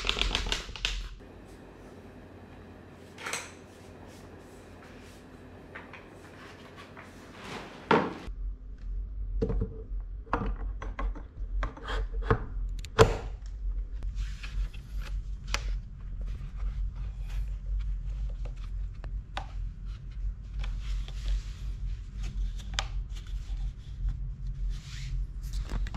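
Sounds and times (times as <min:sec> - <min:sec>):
steady low hum: 0:01.1 - 0:25.9.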